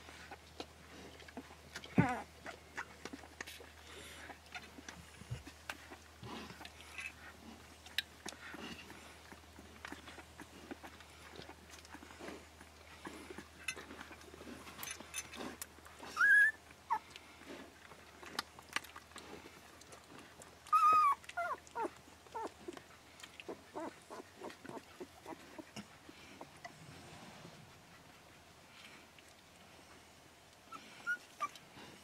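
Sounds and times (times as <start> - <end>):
puppies squeaking: 16.0 - 17.1, 20.6 - 22.5, 23.7 - 25.8, 30.7 - 31.6.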